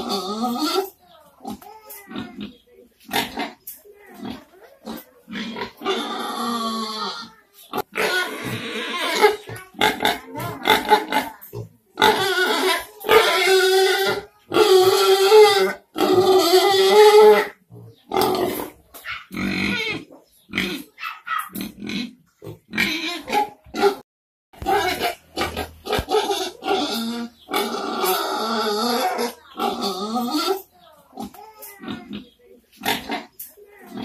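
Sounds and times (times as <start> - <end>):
pigs calling: 0.0 - 24.0, 24.6 - 34.0.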